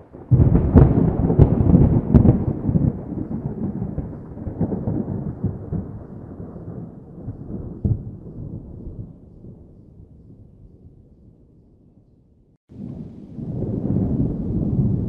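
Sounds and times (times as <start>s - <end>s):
low thunder rumble: 0.0s - 11.6s, 12.7s - 15.0s
thunder cracks: 0.1s - 9.7s, 12.7s - 15.0s.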